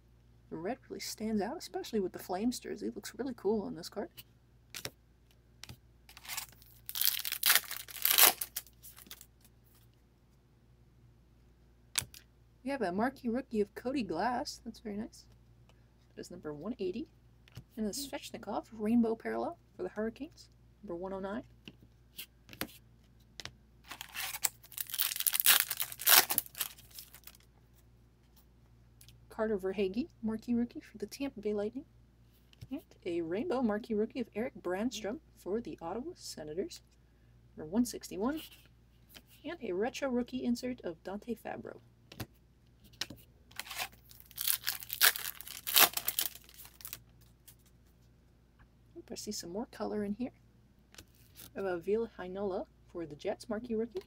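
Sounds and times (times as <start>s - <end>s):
foil wrapper tearing and crinkling: 6.1s - 9.3s, 23.9s - 27.4s, 43.5s - 47.0s.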